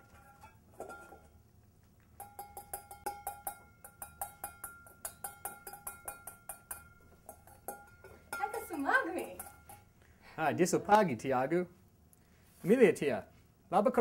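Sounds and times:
utensil clinking against bowl: 2.2s - 9.9s.

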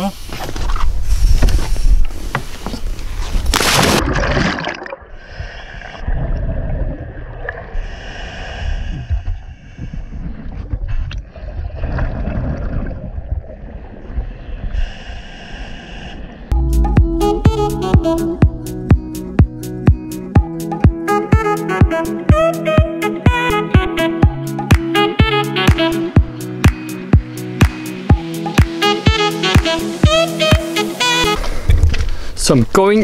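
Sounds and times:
loud splash into water: 3.5s - 5.1s
breathing through scuba regulator: 5.1s - 6.1s, 7.7s - 11.1s, 14.2s - 16.6s.

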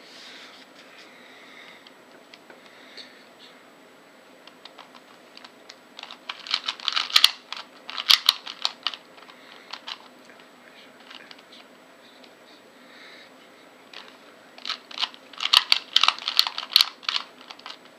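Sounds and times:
puzzle cube clicking: 4.6s - 9.0s, 14.0s - 17.8s.

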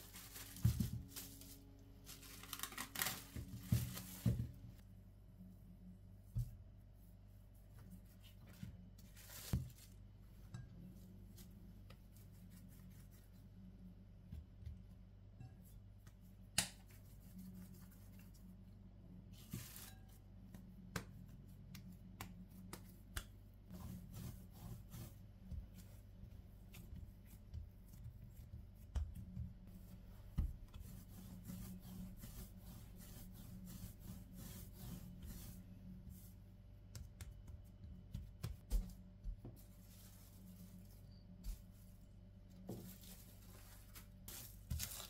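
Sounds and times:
plastic wrap crinkling: 0.0s - 4.6s, 42.8s - 45.0s
low steady hum: 0.0s - 45.0s
soft taps and rustles: 0.2s - 1.6s, 36.9s - 45.0s.

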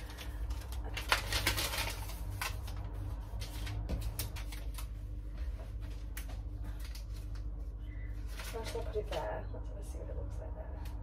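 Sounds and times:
paper banner rustling: 0.0s - 9.4s
low steady background hum: 0.0s - 11.0s.

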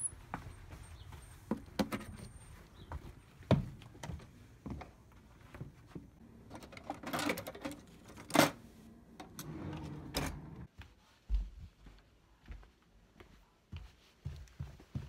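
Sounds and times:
utensils clattering in a drawer: 6.5s - 8.6s.

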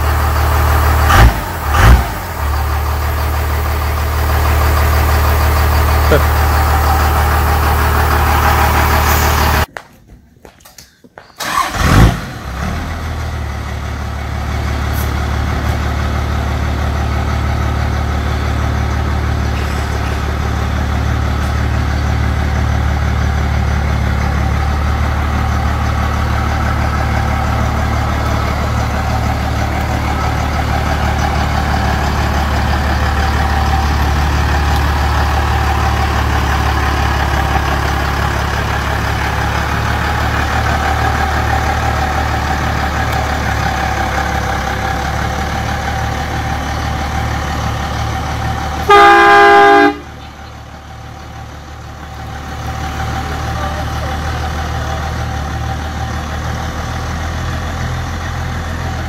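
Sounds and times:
diesel truck engine running: 0.0s - 9.8s, 11.4s - 59.0s
loud vehicle horn: 48.8s - 50.2s.

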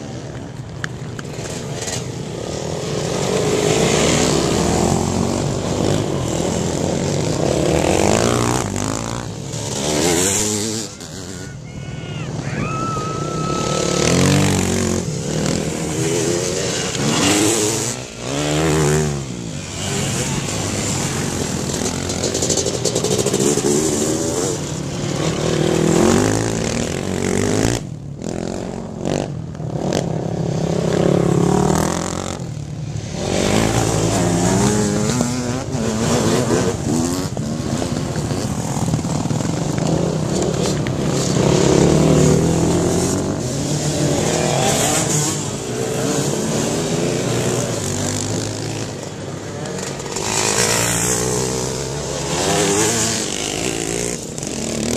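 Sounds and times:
motorcycles revving: 0.0s - 54.9s.

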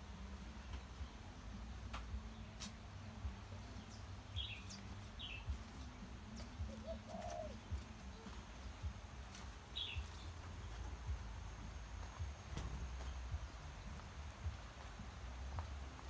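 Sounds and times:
birds chirping: 0.0s - 16.0s
footstep thuds: 12.0s - 13.5s.

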